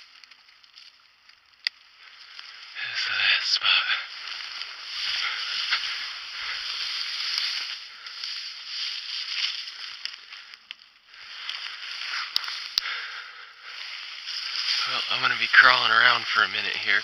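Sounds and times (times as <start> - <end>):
leaves and brush rustling: 0.0 - 17.0
sharp clicks: 0.1 - 2.4.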